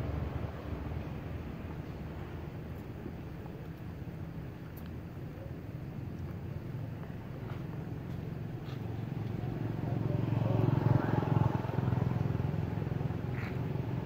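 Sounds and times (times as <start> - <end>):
passing vehicle engine hum: 0.0 - 3.5, 6.8 - 14.0.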